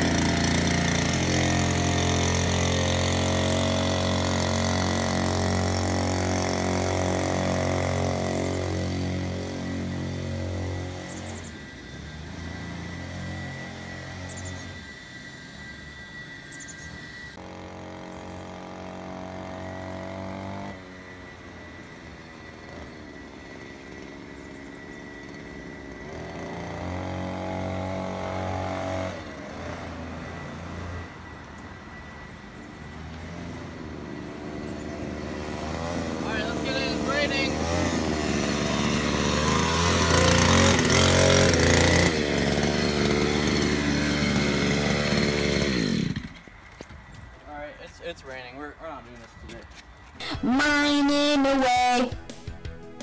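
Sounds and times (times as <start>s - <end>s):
scooter engine revving: 0.0s - 14.8s, 17.4s - 21.2s, 26.0s - 31.0s, 33.3s - 46.6s.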